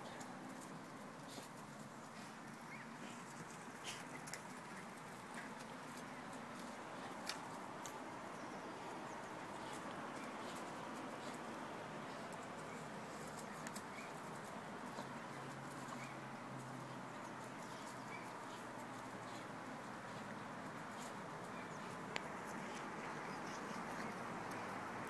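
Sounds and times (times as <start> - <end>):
steady low hiss: 0.0 - 25.0
light ticks: 21.9 - 24.8.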